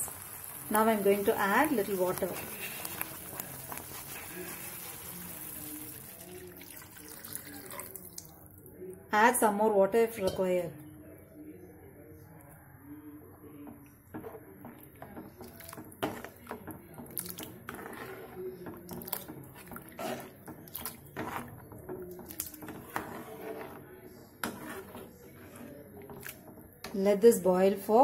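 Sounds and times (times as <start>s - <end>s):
ladle scraping and knocking pan: 13.6s - 27.1s.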